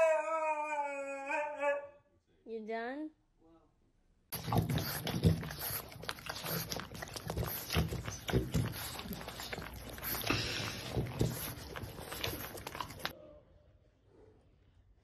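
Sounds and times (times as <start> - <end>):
dog lapping and licking: 4.3 - 13.1.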